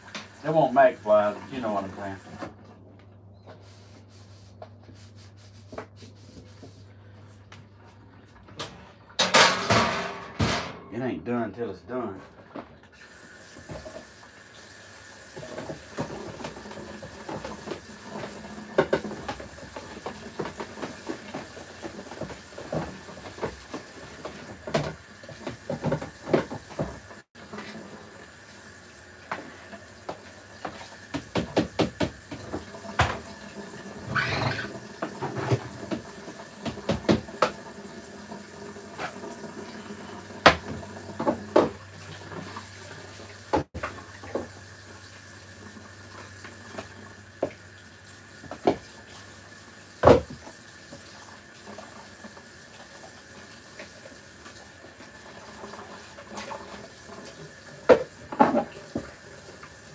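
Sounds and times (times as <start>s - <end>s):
tap water running: 0.0s - 2.8s, 12.2s - 59.9s
dishes clinking and clattering: 9.2s - 10.9s.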